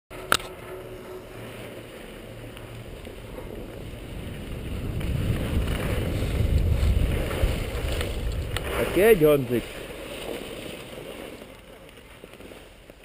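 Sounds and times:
wind on microphone: 0.2s - 9.9s
skis sliding over snow: 0.2s - 13.0s.

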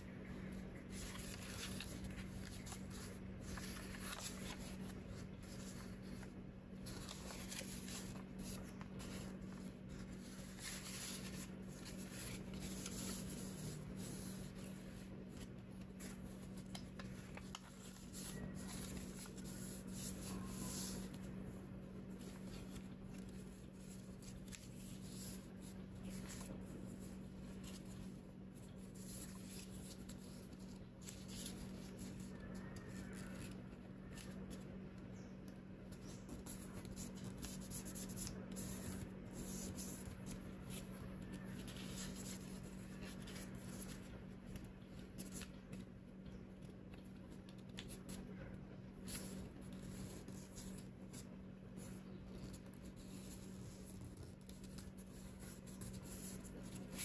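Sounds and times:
steady low hum: 0.0s - 57.0s
paper crinkling being folded: 0.1s - 57.0s.

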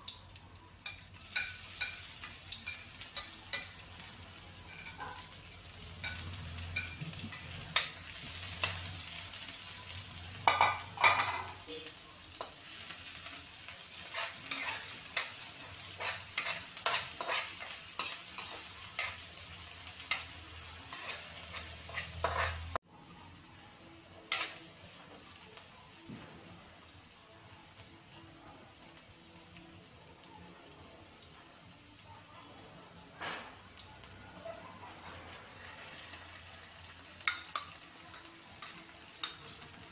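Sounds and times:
food sizzling in oil: 0.0s - 39.9s
metal spoon scraping wok: 15.9s - 19.1s, 20.9s - 22.8s.

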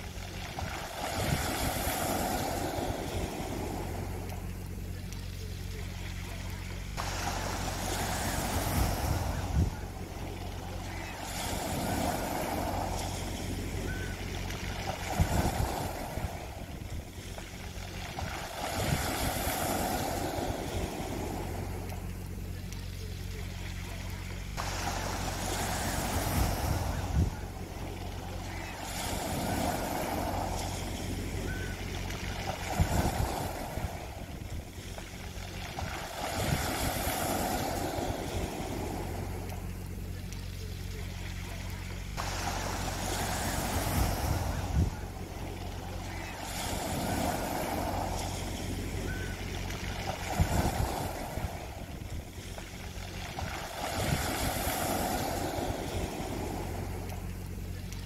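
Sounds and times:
steady low hum: 0.0s - 58.0s
waves washing over pebbles: 0.0s - 58.0s.

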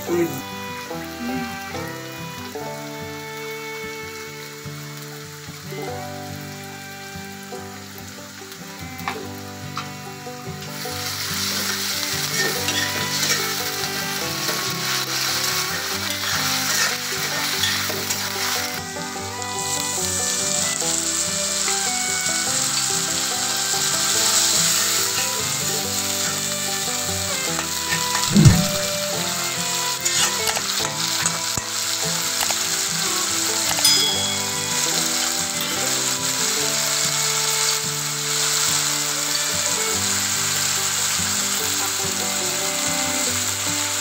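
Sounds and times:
food sizzling in hot oil: 0.0s - 44.0s
metal spatula stirring in wok: 12.4s - 13.4s, 16.7s - 16.9s, 17.6s - 17.9s.

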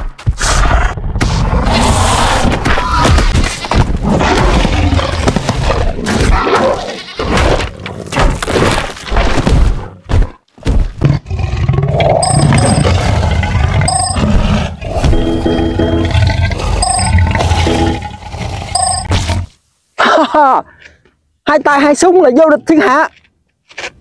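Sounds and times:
big cat roars and snarls: 0.4s - 3.3s, 3.9s - 8.5s, 11.0s - 19.6s.

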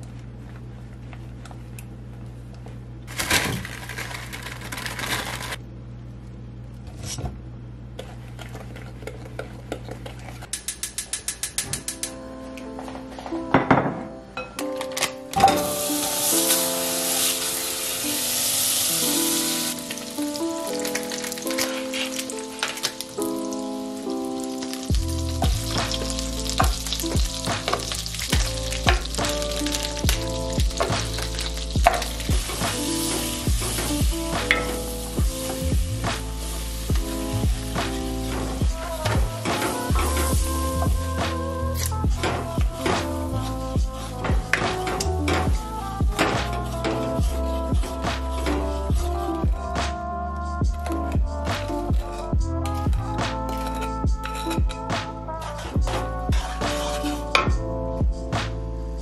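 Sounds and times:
toffee sizzling in saucepan: 15.6s - 45.1s
batter being beaten: 24.5s - 50.0s
spoon scraping glass bowl: 53.5s - 54.8s.

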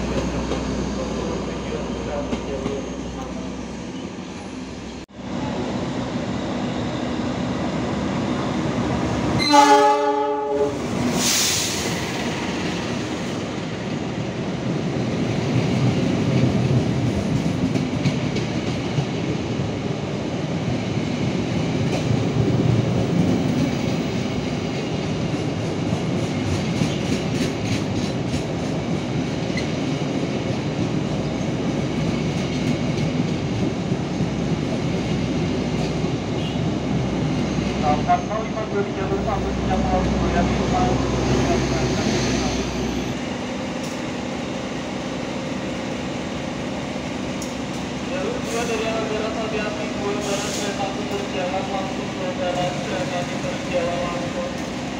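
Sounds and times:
train rumble and wheel clatter: 0.0s - 54.9s
diesel locomotive horn blast: 9.4s - 10.9s, 36.4s - 36.8s.

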